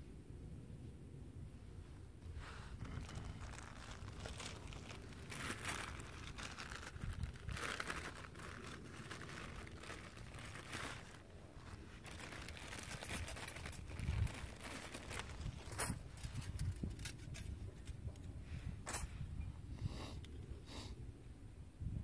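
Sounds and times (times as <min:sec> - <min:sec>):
plastic bag crinkling: 0:02.8 - 0:17.2.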